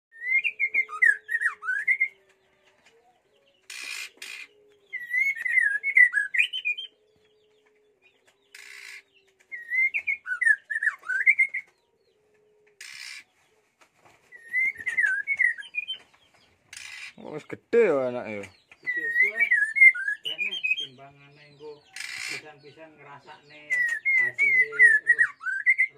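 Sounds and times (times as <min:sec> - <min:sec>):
bird singing warbling phrases: 0:00.1 - 0:13.5, 0:14.2 - 0:25.9.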